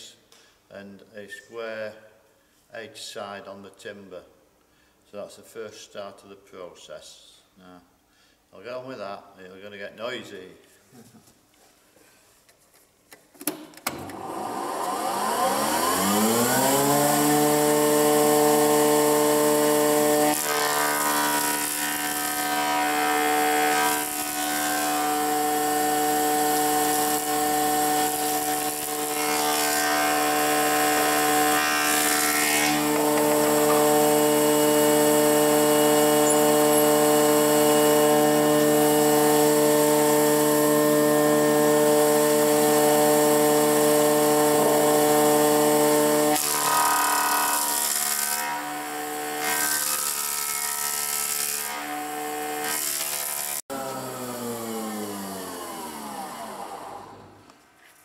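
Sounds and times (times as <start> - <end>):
planer cutting wood: 13.9 - 57.4
planer motor humming: 14.0 - 51.9.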